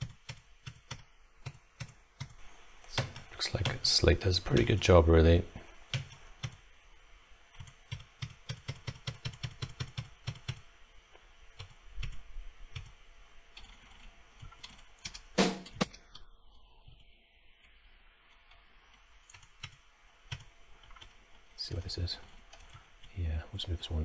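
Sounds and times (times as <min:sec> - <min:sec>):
keyboard keys clicking: 0:07.6 - 0:10.6, 0:13.6 - 0:15.9.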